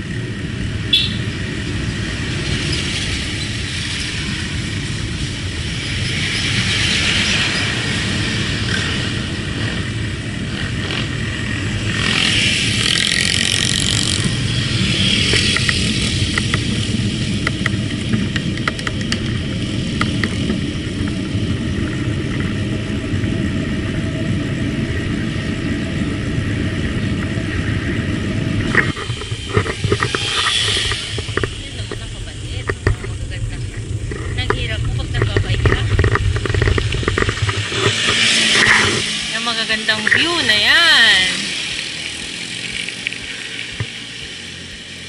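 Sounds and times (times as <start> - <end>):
bicycle road rumble: 0.0 - 45.0
passing motor vehicle: 0.0 - 45.0
wind on microphone: 12.6 - 39.4.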